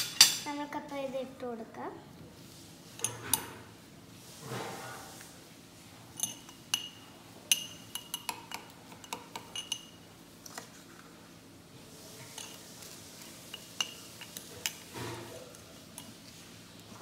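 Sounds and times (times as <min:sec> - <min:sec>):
metal spoon clinking on glass: 0:06.2 - 0:10.0, 0:13.5 - 0:14.8.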